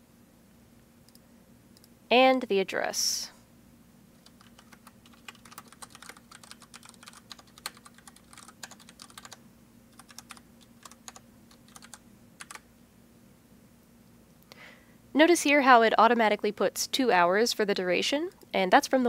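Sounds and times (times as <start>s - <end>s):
computer keyboard typing: 4.2s - 12.6s.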